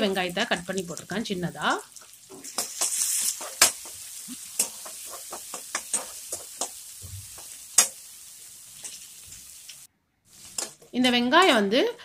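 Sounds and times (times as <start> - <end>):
vegetables sizzling in oil: 0.0 - 11.8
metal spatula scraping and knocking pan: 2.3 - 8.0.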